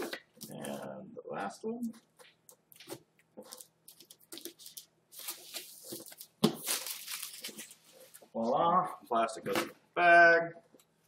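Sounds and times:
plastic wrap crackling and tearing: 0:03.5 - 0:07.8.

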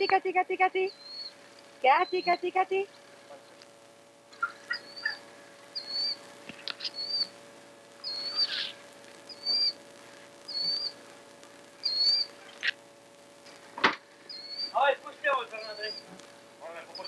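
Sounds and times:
faint steady hum: 0:00.0 - 0:17.0
bird chirping: 0:00.8 - 0:03.0, 0:04.3 - 0:07.4, 0:08.0 - 0:09.8, 0:10.5 - 0:11.0, 0:11.8 - 0:12.8, 0:14.2 - 0:14.9, 0:15.5 - 0:16.2.

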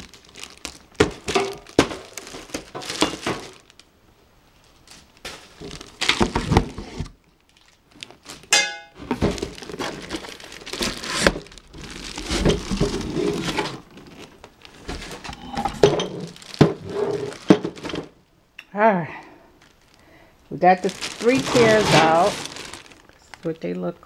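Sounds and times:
cardboard and plastic rustling: 0:00.0 - 0:03.9, 0:04.5 - 0:18.3, 0:19.5 - 0:23.6.

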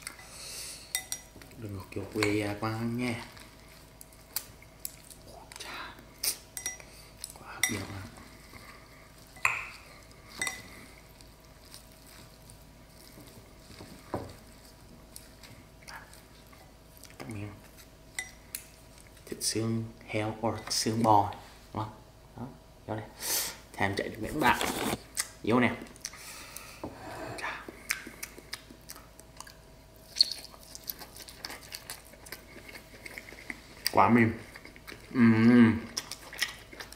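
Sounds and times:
wet rustling and squishing food: 0:01.2 - 0:21.6, 0:27.6 - 0:36.9
chewing mouth sounds: 0:27.4 - 0:36.9.

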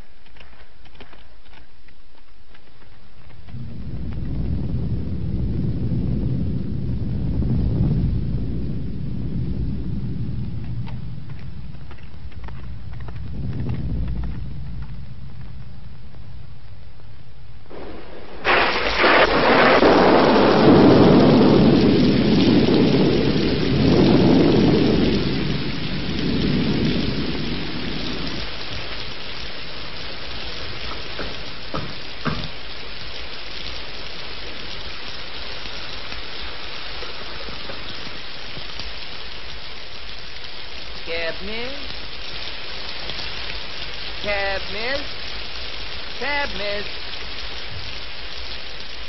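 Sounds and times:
steady downpour of rain: 0:00.0 - 0:49.0
thunder clap rolling: 0:03.5 - 0:33.2, 0:35.8 - 0:39.1.

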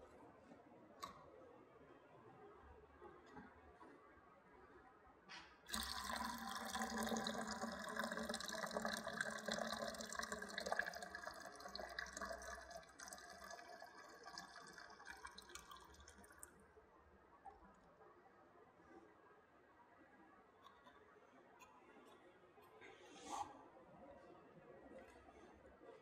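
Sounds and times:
liquid pouring into plastic bucket: 0:05.7 - 0:16.6.

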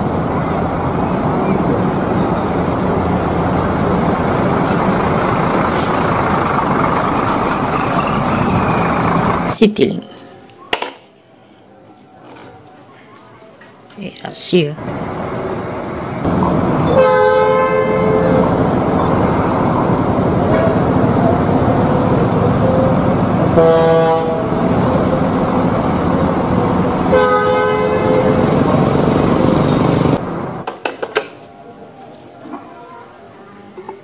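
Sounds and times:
bus engine running: 0:00.0 - 0:10.0, 0:14.8 - 0:32.1
bus air horn blasts: 0:16.9 - 0:18.8, 0:22.8 - 0:24.8, 0:27.0 - 0:28.9.

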